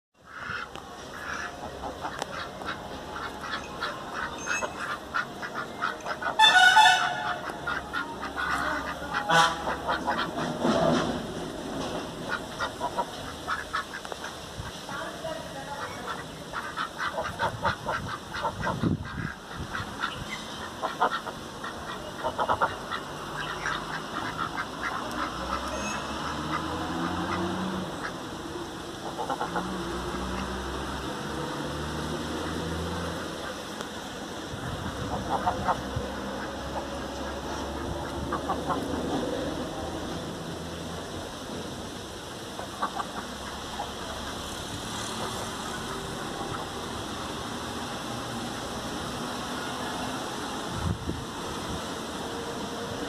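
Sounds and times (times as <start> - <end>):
ducks quacking: 0.2 - 10.6, 12.2 - 28.2, 29.0 - 29.8, 34.5 - 39.4, 42.5 - 44.6.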